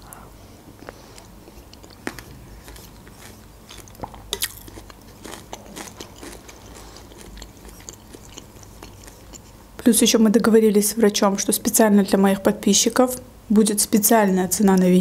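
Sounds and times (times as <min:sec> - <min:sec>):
quiet chewing and mouth noises: 0:00.0 - 0:09.6.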